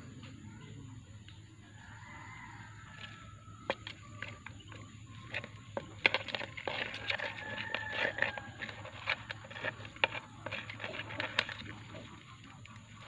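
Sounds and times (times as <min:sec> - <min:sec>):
sharp clicks and scratchy scrapes: 0:03.0 - 0:13.0.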